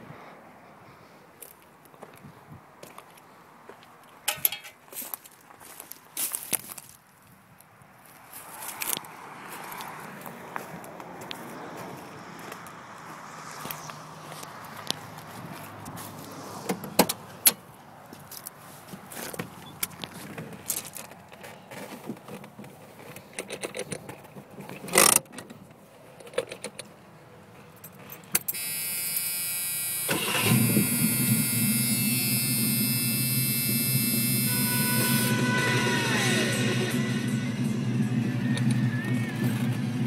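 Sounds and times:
car engine starting and idling: 28.5s - 40.0s.

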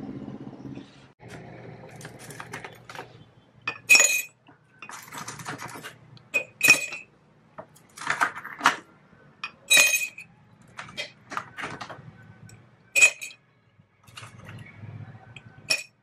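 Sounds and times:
glass jars being handled: 1.9s - 13.4s, 14.0s - 16.0s
metal capsules clinking in tin: 9.4s - 11.1s, 13.0s - 13.4s.

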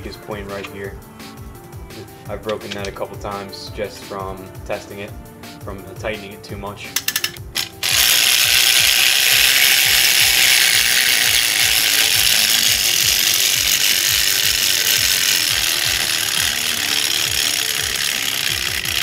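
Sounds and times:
plastic gears whirring: 7.0s - 19.0s
clockwork motor buzzing: 7.2s - 19.0s.

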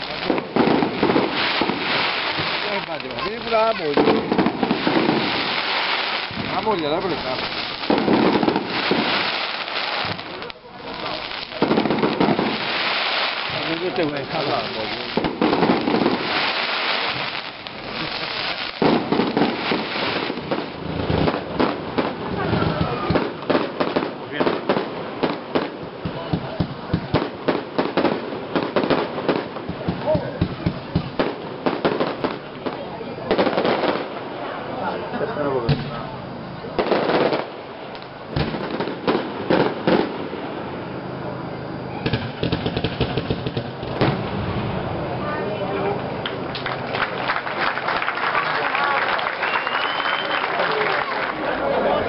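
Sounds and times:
fireworks crackling and popping: 0.0s - 52.0s.

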